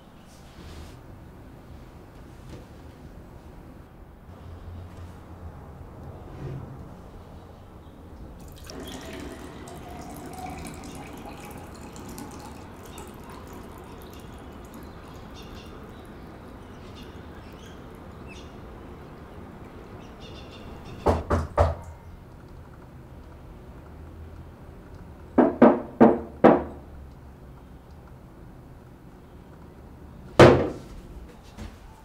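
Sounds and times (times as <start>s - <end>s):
water pouring into glass: 8.4s - 19.8s
sharp knocks: 21.0s - 21.8s.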